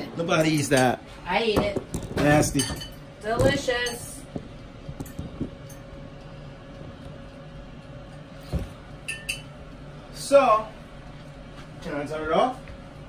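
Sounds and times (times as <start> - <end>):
fryer fan humming: 0.0 - 13.0.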